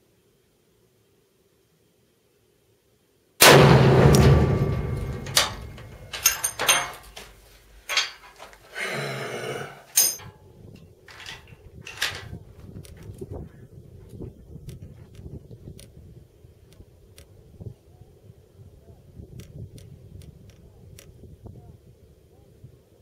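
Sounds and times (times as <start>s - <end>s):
rifle shot with echo: 3.4s - 6.6s
metallic clicks and clanks: 3.4s - 8.6s, 9.9s - 10.4s, 11.1s - 12.4s.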